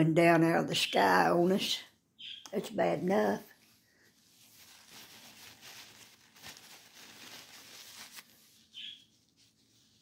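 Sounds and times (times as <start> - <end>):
paper tissue rustling: 3.3 - 10.0.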